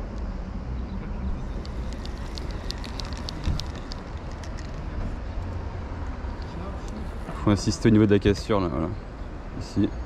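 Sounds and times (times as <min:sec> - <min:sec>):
fishing reel clicking: 0:01.6 - 0:04.7.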